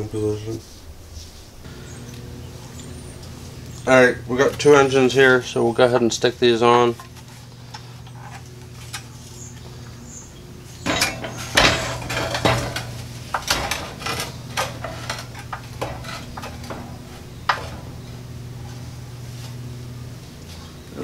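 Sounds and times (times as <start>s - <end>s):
metal clanks and scrapes: 6.9s - 9.6s, 10.8s - 20.8s.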